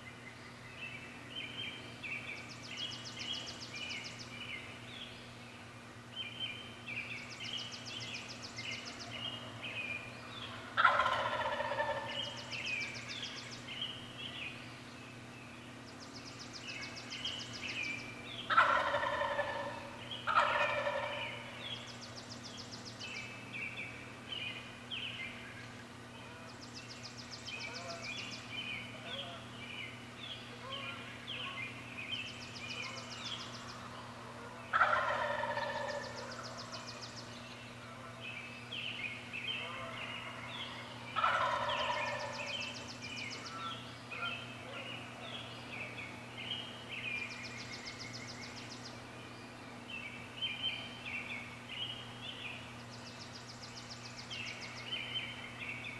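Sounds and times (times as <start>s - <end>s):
songbird singing: 0.0s - 55.9s
wild turkey gobbling: 10.4s - 12.6s, 18.4s - 21.9s, 32.7s - 37.2s, 39.5s - 45.3s.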